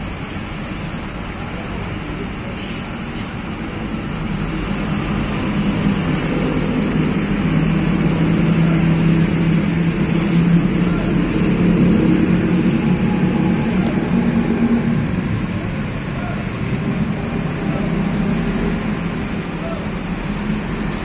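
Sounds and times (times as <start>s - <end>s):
bus diesel engine running: 0.0s - 21.0s
compressed air hiss: 2.5s - 3.5s.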